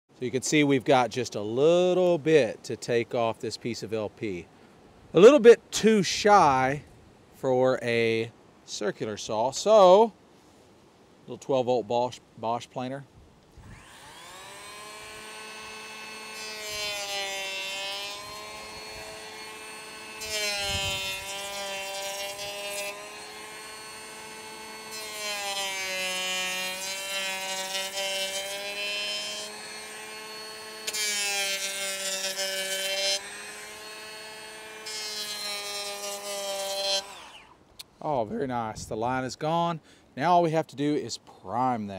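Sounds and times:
cordless planer motor whine: 13.6s - 37.6s.

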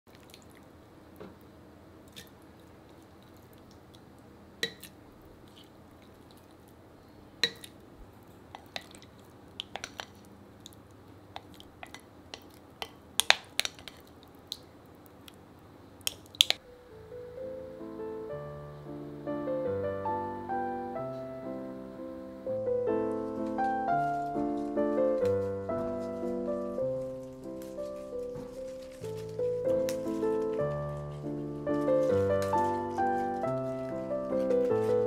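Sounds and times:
wet squishes and drips: 0.1s - 0.8s, 8.5s - 15.4s.

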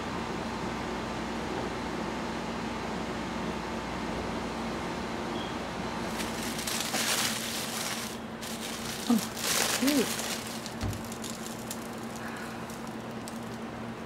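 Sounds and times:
background hum: 4.3s - 14.0s
tissue paper rustling: 6.0s - 13.6s.

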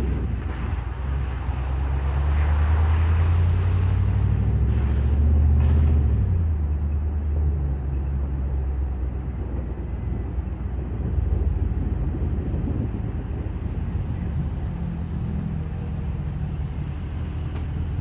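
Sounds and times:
pickup engine revving: 0.0s - 8.0s, 11.3s - 18.0s.

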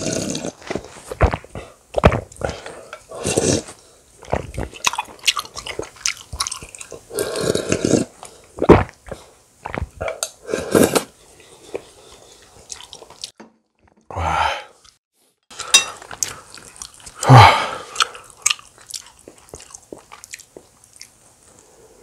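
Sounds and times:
chewing and wet mouth noises: 4.2s - 7.2s, 11.4s - 14.0s, 15.6s - 21.7s.

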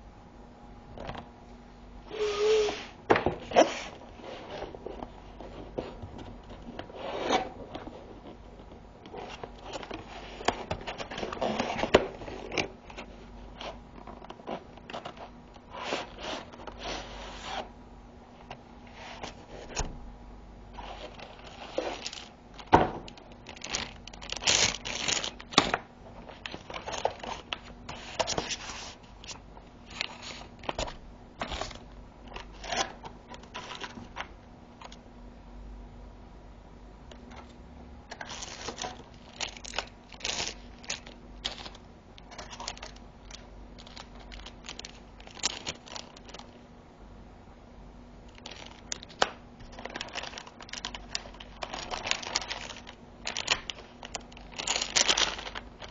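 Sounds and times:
cardboard scraping and rustling: 2.1s - 17.7s, 20.7s - 22.9s, 26.2s - 29.1s.

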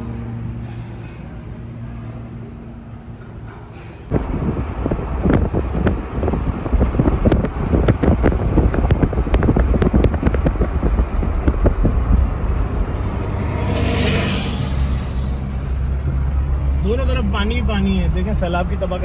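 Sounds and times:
car engine and road noise: 0.0s - 19.0s
wind buffeting microphone: 4.1s - 13.7s
rush of air: 4.1s - 15.7s.

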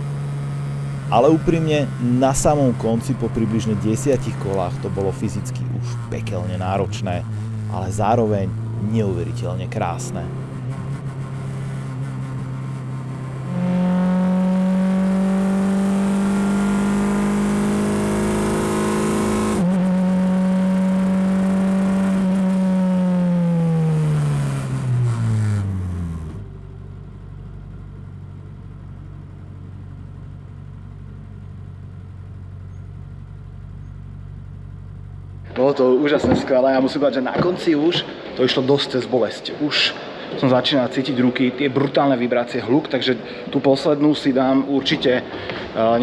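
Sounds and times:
racing car engine at high revs: 0.0s - 26.5s.

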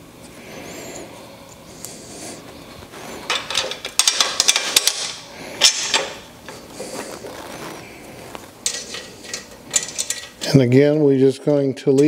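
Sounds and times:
metal tubes clicking and knocking: 3.2s - 6.2s, 8.6s - 10.6s.

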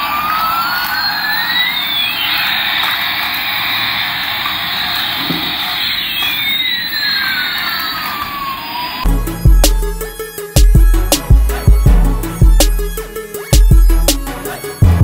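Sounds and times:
toy jet engine sound effect: 0.0s - 9.1s.

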